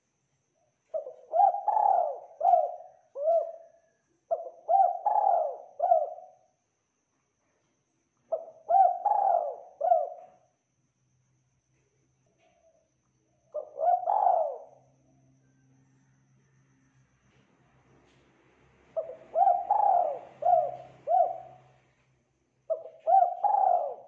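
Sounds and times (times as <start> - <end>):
dove cooing: 0.9 - 6.4, 8.3 - 10.4, 13.5 - 14.8, 19.0 - 21.9, 22.7 - 24.0.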